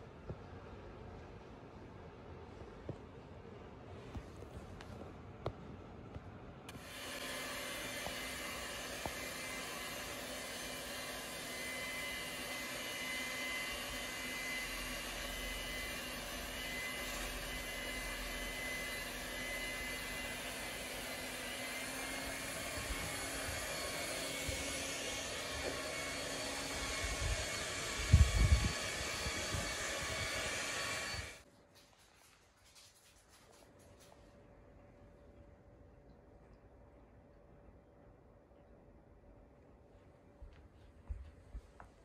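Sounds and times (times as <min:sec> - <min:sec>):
motor-driven blower whirring: 0:06.7 - 0:31.4.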